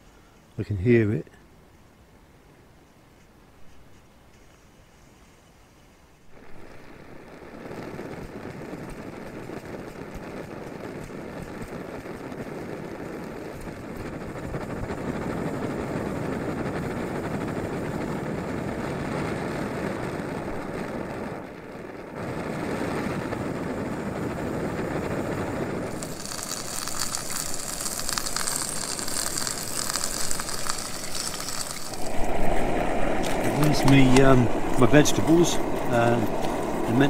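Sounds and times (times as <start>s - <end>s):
stove burner hissing: 4.4s - 37.0s
steak sizzling in pan: 25.9s - 36.8s.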